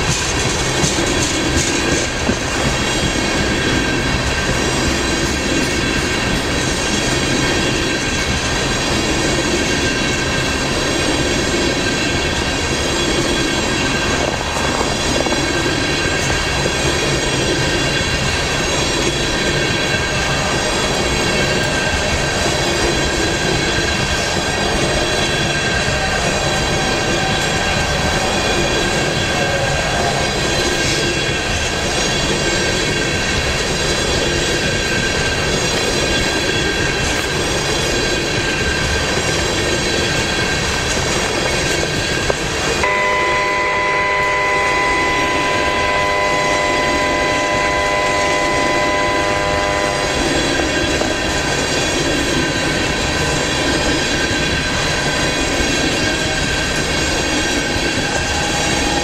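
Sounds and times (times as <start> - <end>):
freight train wheels rumbling: 0.0 - 59.0
wheels squealing: 0.0 - 59.0
steady chord of tones: 42.8 - 51.7.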